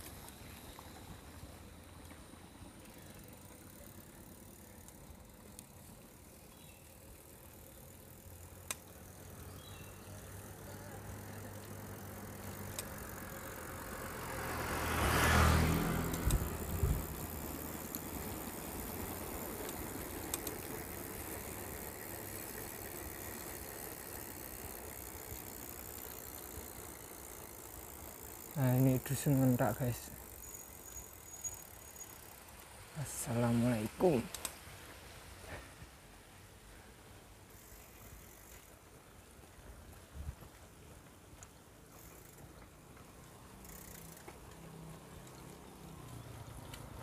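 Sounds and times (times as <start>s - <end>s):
vehicle engine passing: 9.9s - 24.4s.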